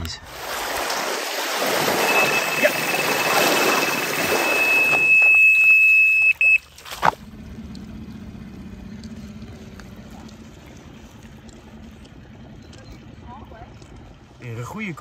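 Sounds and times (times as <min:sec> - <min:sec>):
water lapping: 0:00.0 - 0:08.2, 0:09.1 - 0:15.0
bite alarm high tone: 0:01.8 - 0:06.6
short beeps: 0:01.8 - 0:06.7.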